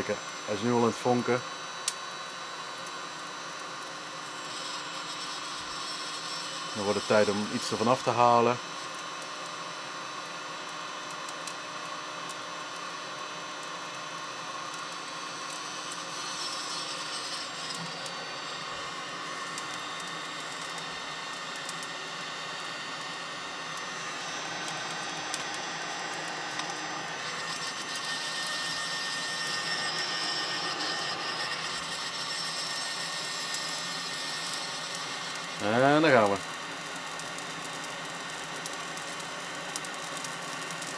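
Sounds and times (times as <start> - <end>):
hot-air lighter fan blowing: 0.0 - 40.9.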